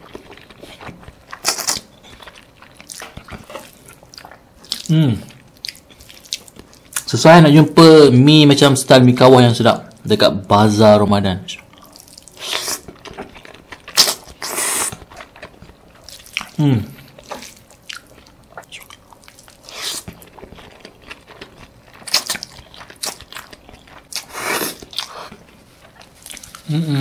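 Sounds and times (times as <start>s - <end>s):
wet chewing and slurping: 0.0s - 7.1s, 11.6s - 27.0s
man humming: 4.9s - 5.3s, 16.6s - 17.0s, 26.6s - 27.0s.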